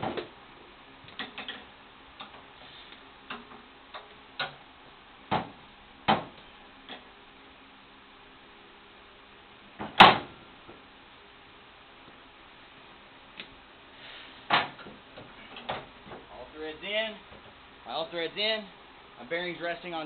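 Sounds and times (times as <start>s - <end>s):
sharp clicks and knocks: 3.3s - 4.6s.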